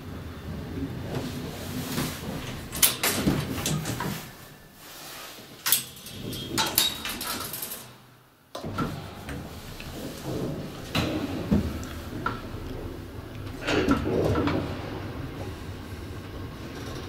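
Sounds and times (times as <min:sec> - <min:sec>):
metal gate clanking and rattling: 0:02.4 - 0:04.3, 0:05.6 - 0:08.0, 0:08.6 - 0:15.6
gate clunk: 0:02.4 - 0:04.4, 0:05.6 - 0:07.9, 0:08.6 - 0:16.2.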